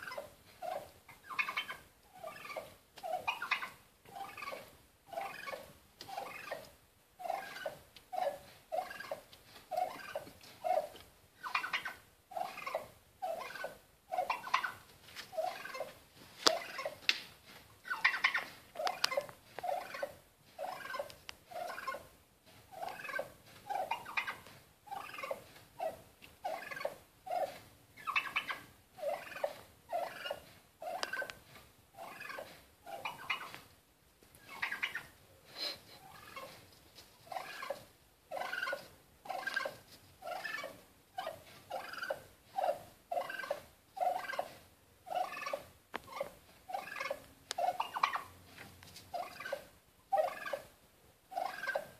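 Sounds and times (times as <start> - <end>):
wild turkey calling: 0.0 - 17.1, 17.8 - 22.1, 22.7 - 33.7, 34.4 - 35.2, 36.0 - 36.6, 37.2 - 48.4, 49.1 - 51.9.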